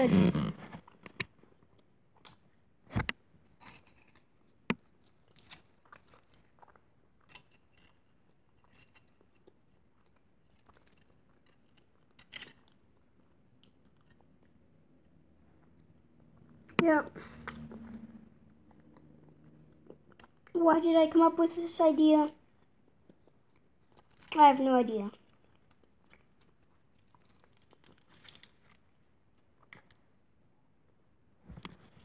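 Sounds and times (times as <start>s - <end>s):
person chewing chocolate: 3.5s - 20.6s, 22.4s - 24.3s, 25.2s - 30.0s.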